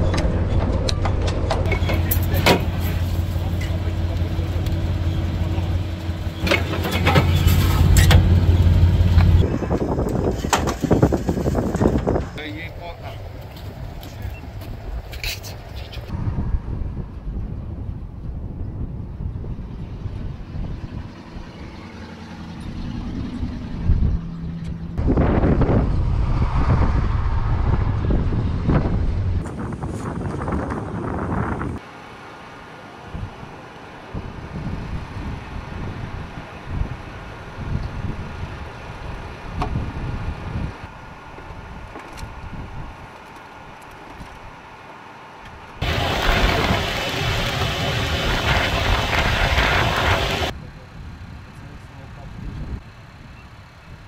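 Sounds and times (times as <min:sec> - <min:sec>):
low engine-like rumble: 0:00.0 - 0:54.0
wind noise on microphone: 0:06.4 - 0:12.5, 0:13.5 - 0:21.8, 0:22.6 - 0:31.8, 0:33.1 - 0:43.2, 0:45.8 - 0:54.0.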